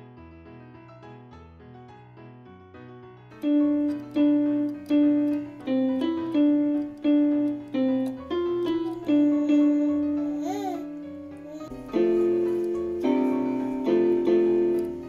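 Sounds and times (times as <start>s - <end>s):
keyboard single notes: 3.4s - 15.0s.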